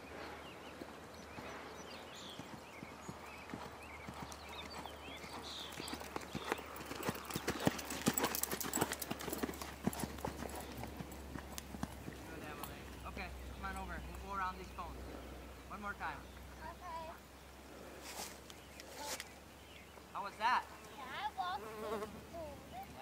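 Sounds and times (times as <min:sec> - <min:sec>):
horse hoofbeats on sand: 0:00.7 - 0:13.0.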